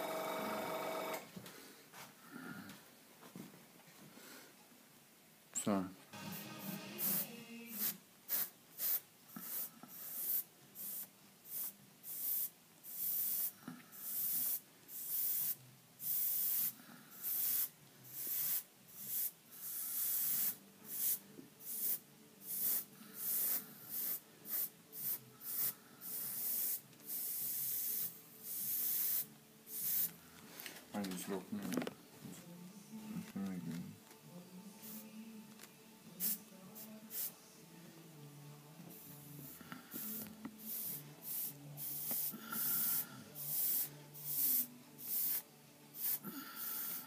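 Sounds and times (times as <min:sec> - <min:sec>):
airbrush spraying hiss: 0:06.3 - 0:30.2, 0:34.8 - 0:35.1, 0:36.2 - 0:37.4, 0:38.9 - 0:47.0.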